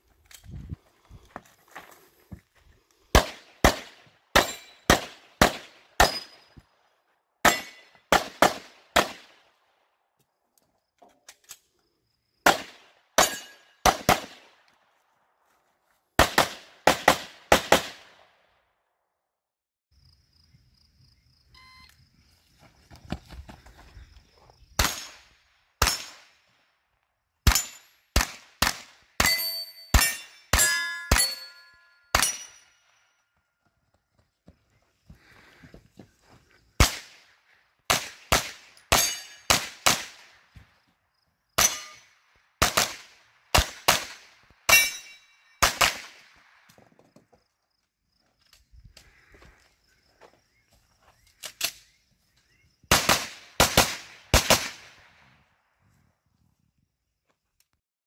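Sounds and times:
gunshots in bursts: 3.1 - 6.5, 7.4 - 9.8, 12.4 - 14.7, 16.2 - 18.5, 24.8 - 26.6, 27.4 - 32.7, 36.8 - 40.5, 41.6 - 46.7, 52.9 - 55.3
steel targets ringing: 4.4 - 4.9, 7.5 - 7.9, 13.2 - 13.8, 29.2 - 32.9, 38.9 - 39.5, 41.6 - 42.1, 44.7 - 45.6.

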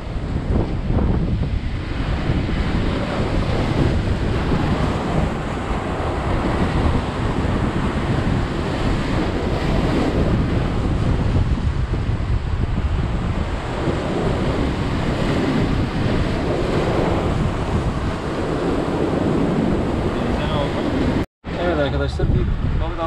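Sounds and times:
waves washing against rocks: 0.0 - 21.8
wind buffeting microphone: 0.0 - 23.0.

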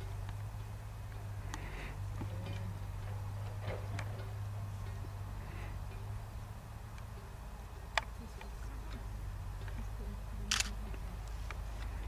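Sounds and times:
camera handling rumble: 10.5 - 10.8.

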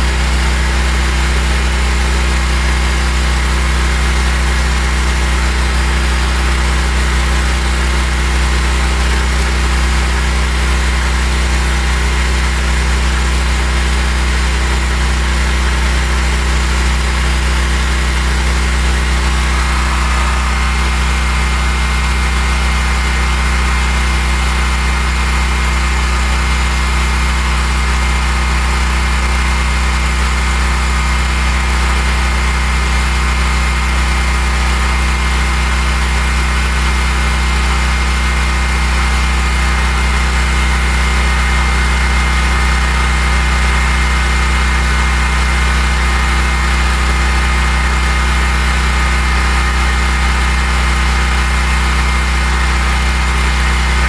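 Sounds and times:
generator engine running: 0.0 - 54.0.

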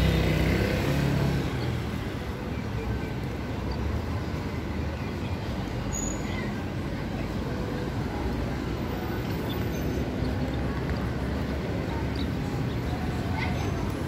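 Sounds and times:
city street traffic rumble: 0.0 - 14.0.

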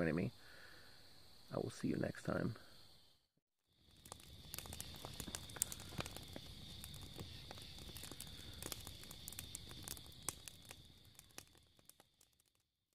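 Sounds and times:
insects trilling: 0.0 - 12.4
low rumble of flame: 3.7 - 12.6
campfire crackling and popping: 3.7 - 12.8.

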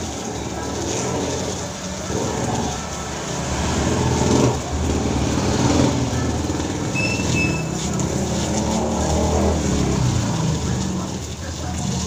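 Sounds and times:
motor vehicle rumbling: 0.0 - 12.0
short high beeps: 6.9 - 7.8.

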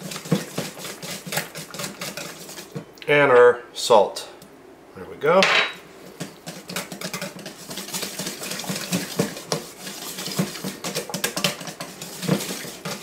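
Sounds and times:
whisk beating batter in metal bowl: 0.0 - 2.8, 6.1 - 13.0.

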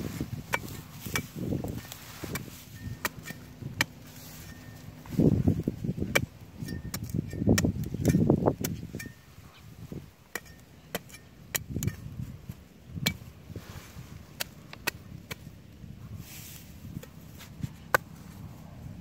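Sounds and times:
soft rustling: 0.0 - 5.7.

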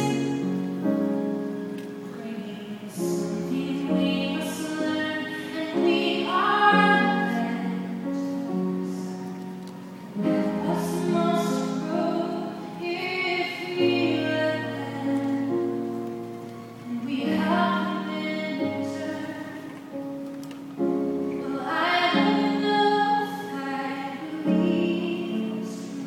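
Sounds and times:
woman singing a ballad: 0.0 - 9.2, 10.1 - 16.0, 16.8 - 20.0, 21.3 - 26.0.

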